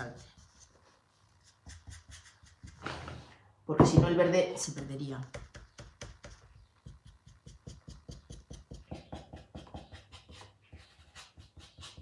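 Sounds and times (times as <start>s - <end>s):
scratchy paintbrush strokes: 0.0s - 3.3s.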